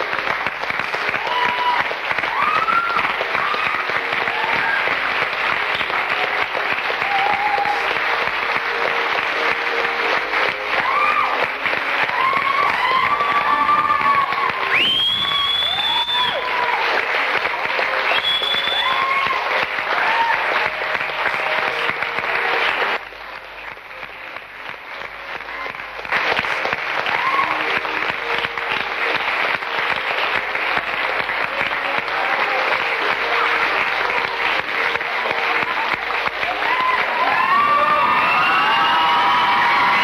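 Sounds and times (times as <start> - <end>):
audience clapping: 0.0 - 40.0
whoops and shouts: 1.1 - 4.9, 7.0 - 8.0, 10.7 - 16.9, 18.1 - 20.7, 27.0 - 27.8, 36.4 - 40.0.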